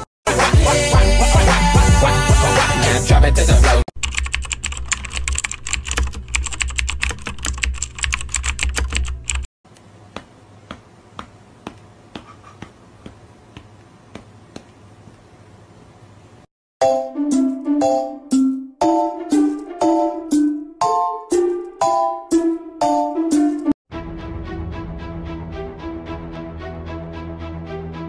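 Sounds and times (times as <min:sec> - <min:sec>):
fast typing on computer keyboard: 0:04.0 - 0:09.5.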